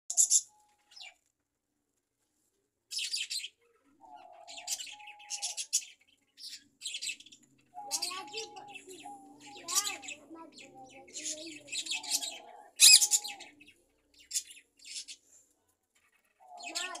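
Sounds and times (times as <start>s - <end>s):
budgerigars chirping: 0.1s - 1.2s, 2.9s - 15.2s
whistled bird notes: 7.8s - 10.2s, 11.2s - 13.6s.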